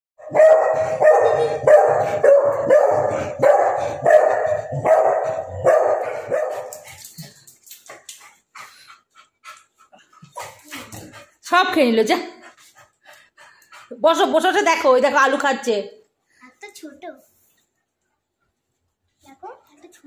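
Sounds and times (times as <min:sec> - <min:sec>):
small dog barking rapidly: 0:00.2 - 0:06.7.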